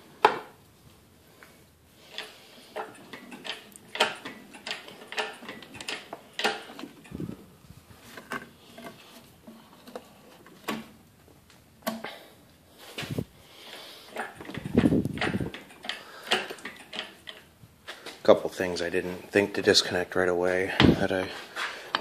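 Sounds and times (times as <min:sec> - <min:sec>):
metallic clicks of tools and parts: 0:02.1 - 0:07.3, 0:14.1 - 0:17.5.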